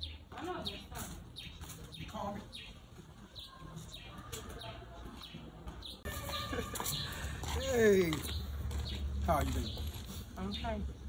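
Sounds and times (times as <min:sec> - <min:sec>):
small birds chirping: 0:00.0 - 0:11.0
faint voices: 0:00.3 - 0:08.4.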